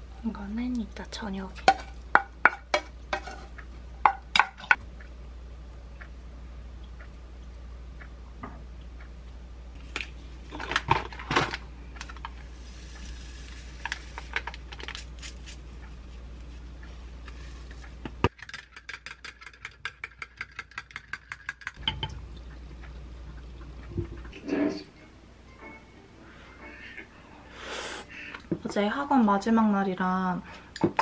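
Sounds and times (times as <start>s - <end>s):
powder pouring rustle: 12.3s - 16.2s.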